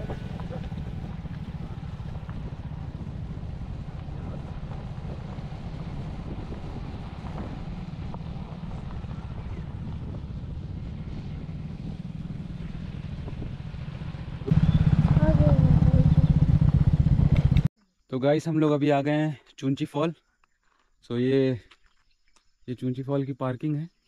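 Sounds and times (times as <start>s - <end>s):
motorcycle running: 0.0s - 17.7s
wind buffeting microphone: 0.0s - 17.7s.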